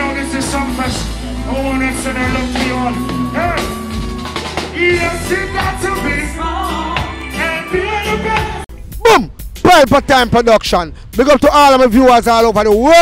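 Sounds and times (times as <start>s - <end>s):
reggae band bass and drums: 0.0s - 10.3s
man singing: 4.7s - 8.7s.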